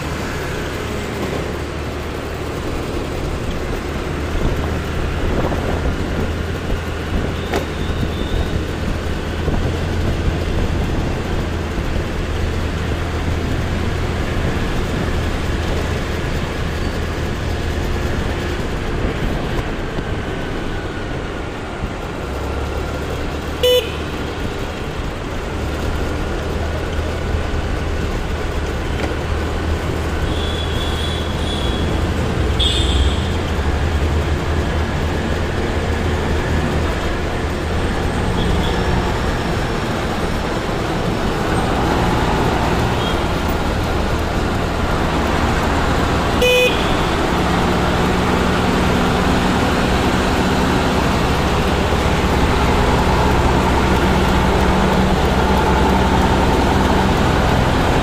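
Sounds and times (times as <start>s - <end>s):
engine and road hum: 0.0s - 58.0s
horns tooting: 7.3s - 8.8s, 23.4s - 24.3s, 30.2s - 33.8s, 38.0s - 39.3s, 42.7s - 43.6s, 46.2s - 47.6s.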